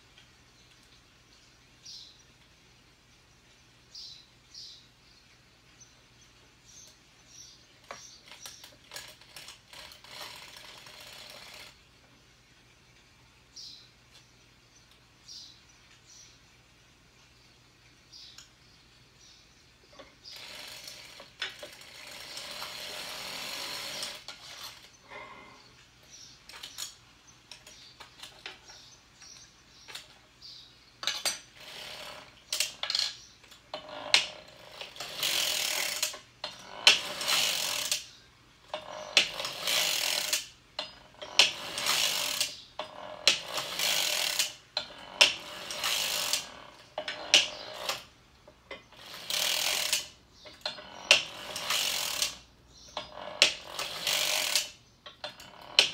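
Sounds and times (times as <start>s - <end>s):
sock machine needles clattering: 7.8s - 11.8s, 19.9s - 25.0s, 31.0s - 55.9s
knitting rustling and clicks: 7.8s - 12.0s.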